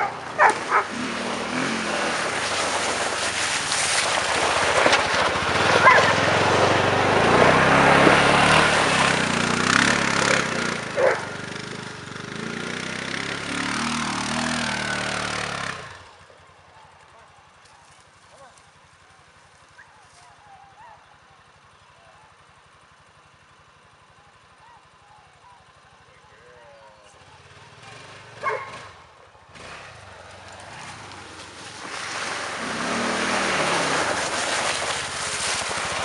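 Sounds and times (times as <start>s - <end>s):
dog barking: 0.0s - 0.9s, 5.8s - 6.2s, 11.0s - 11.3s, 19.8s - 21.1s, 24.6s - 28.9s
quad engine driving past: 0.0s - 36.0s.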